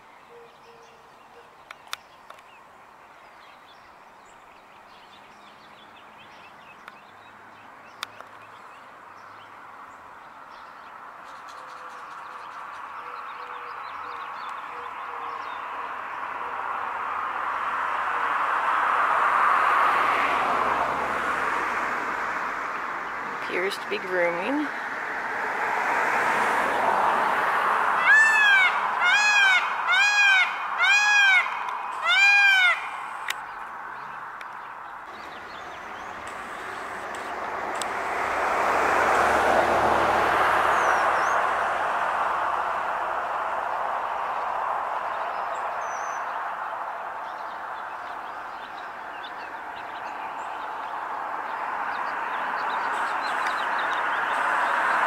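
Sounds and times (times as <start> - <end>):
vehicle driving past: 12.7 - 29.9, 35.1 - 55.0.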